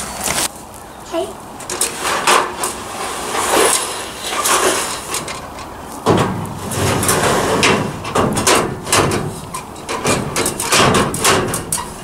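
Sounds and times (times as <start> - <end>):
metal ladder clanking and scraping: 1.6 - 12.0.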